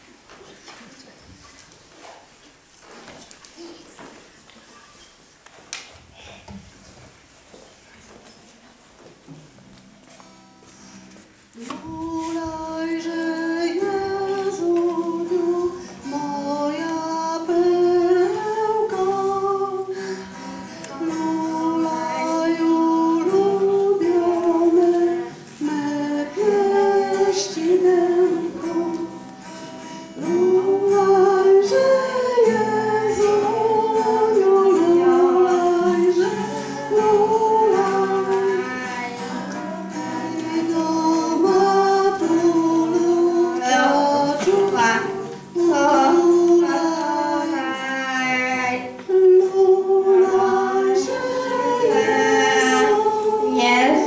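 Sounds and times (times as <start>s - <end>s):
acoustic guitar: 0.0s - 54.0s
woman singing: 11.6s - 29.3s, 30.2s - 54.0s.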